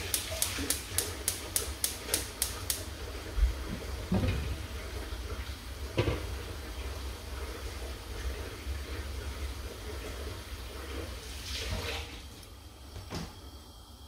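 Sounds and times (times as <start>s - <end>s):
gas hob igniter ticking: 0.0s - 3.2s.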